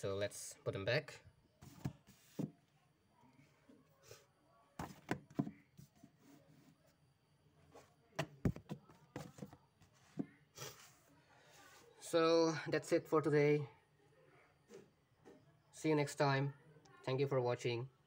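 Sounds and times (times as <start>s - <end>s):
books thunking on a shelf: 4.8s - 5.6s, 8.2s - 9.6s.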